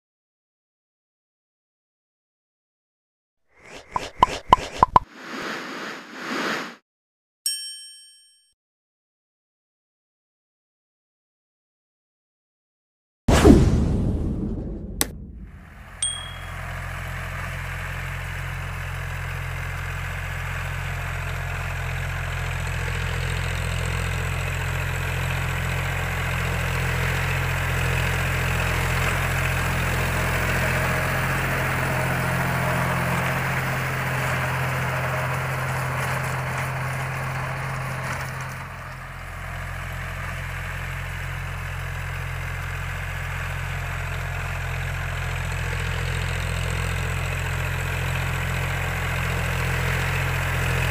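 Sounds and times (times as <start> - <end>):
tractor diesel engine under load: 15.6 - 50.9.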